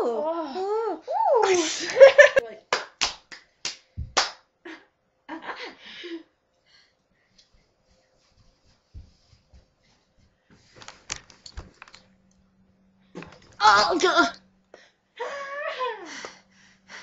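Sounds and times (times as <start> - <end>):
sharp slaps and knocks: 2.8 - 4.4.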